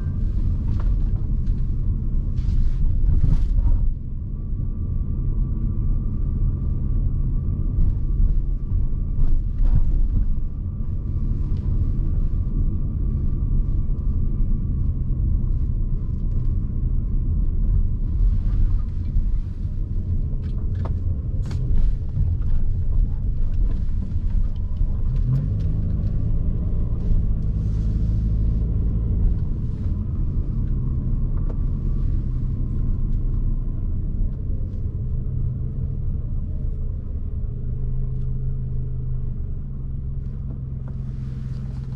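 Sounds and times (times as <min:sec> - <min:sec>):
car engine: 0:00.0 - 0:41.9
road rumble: 0:00.0 - 0:41.9.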